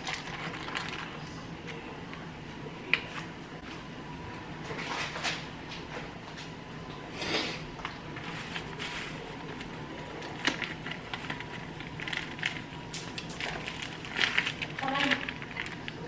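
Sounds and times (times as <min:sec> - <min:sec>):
plastic packaging crinkling: 0:00.0 - 0:01.4, 0:08.1 - 0:16.0.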